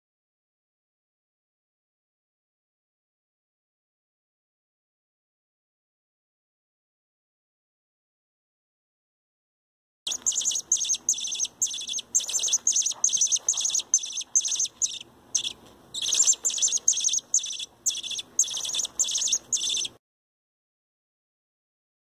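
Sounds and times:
chick begging calls: 10.1s - 20.0s.

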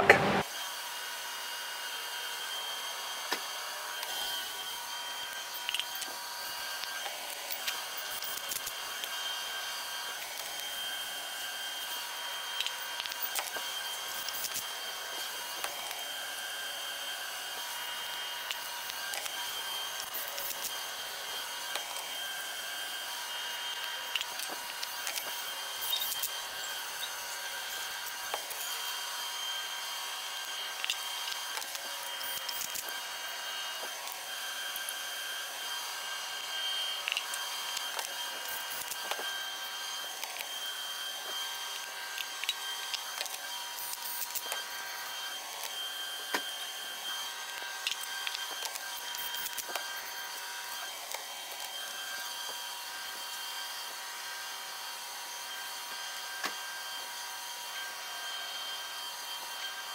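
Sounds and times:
high-pitched machinery whine: 0.0s - 59.9s.

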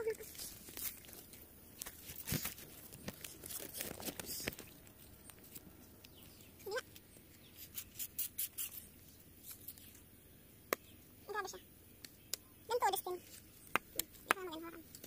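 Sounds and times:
knife scraping leaves: 0.1s - 5.6s, 6.5s - 10.0s.

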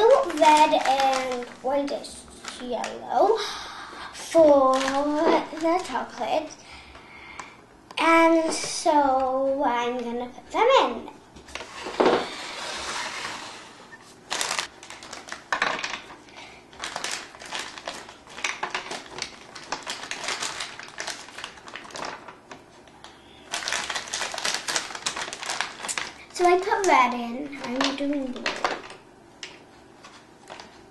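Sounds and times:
plastic bag rustling: 0.0s - 3.4s, 4.2s - 6.6s, 11.5s - 22.8s, 23.4s - 29.0s.

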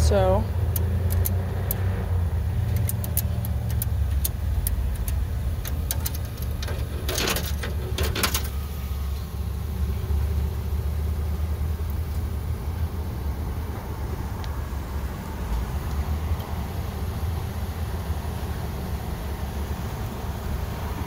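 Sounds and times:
low vehicle engine rumble: 0.0s - 21.0s
keypad buttons clicking: 2.7s - 6.6s.

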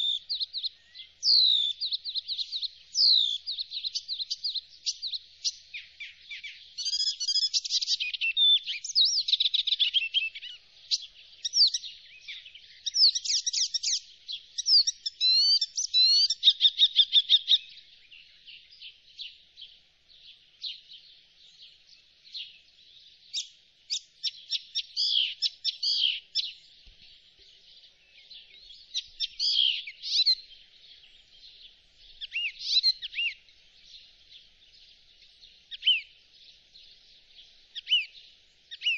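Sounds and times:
warbler singing: 0.0s - 38.9s.

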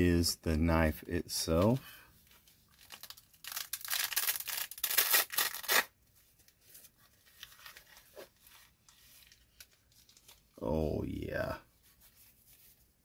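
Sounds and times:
velcro ripping open: 2.6s - 6.0s
fabric rustling: 11.7s - 13.0s.

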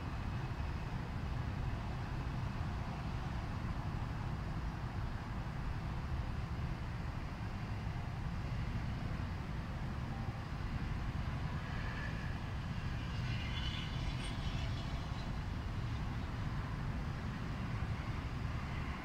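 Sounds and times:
city traffic rumble: 0.0s - 19.0s
faint high whine: 7.0s - 19.0s.

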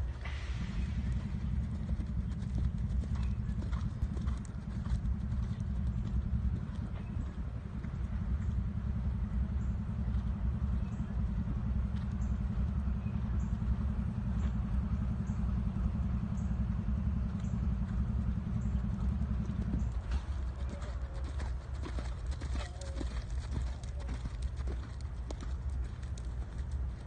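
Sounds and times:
hoofbeats on sand: 0.0s - 15.4s, 17.1s - 27.0s
continuous low rumble: 0.0s - 27.0s.

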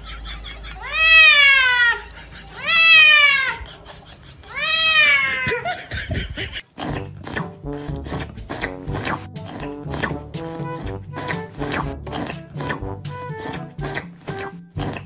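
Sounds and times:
cat yowling: 0.8s - 3.7s, 4.5s - 5.6s
music: 6.9s - 15.0s.

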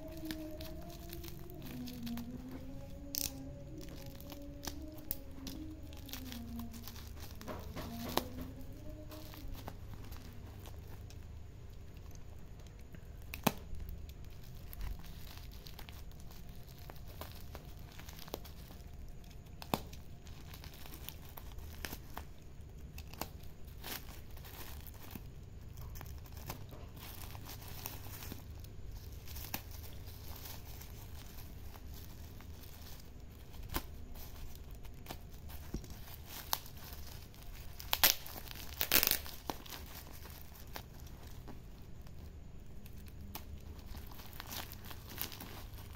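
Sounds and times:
plastic wrapping torn and crinkling: 0.0s - 45.9s
sharp clicks and snaps: 10.1s - 14.9s.

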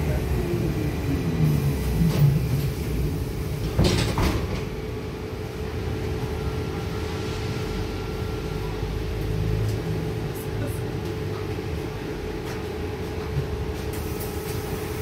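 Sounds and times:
trolleybus low rumble: 0.0s - 15.0s.

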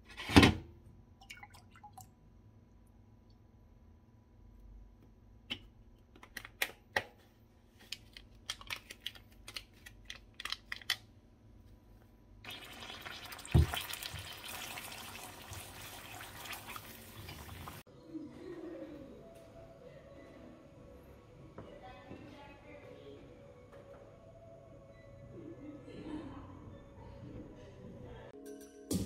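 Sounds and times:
eggs sizzling in a pan: 12.4s - 17.9s.

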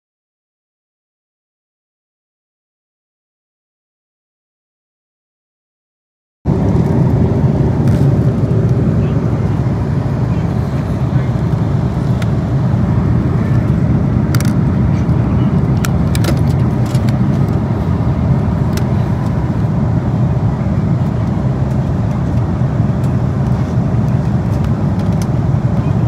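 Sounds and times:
airplane cabin rumble: 6.5s - 26.0s.

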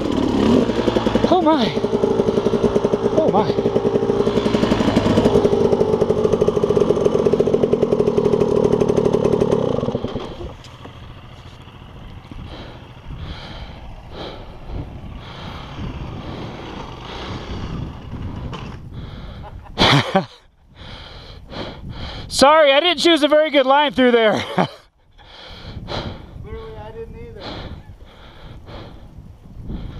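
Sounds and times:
dirt bike engine under load: 0.0s - 12.9s
distant dirt bike: 0.0s - 29.9s.

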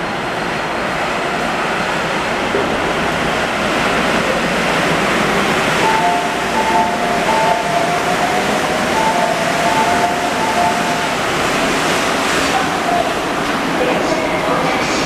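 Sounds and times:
train rushing past: 0.0s - 15.0s
two-note electronic tone: 5.8s - 11.4s.

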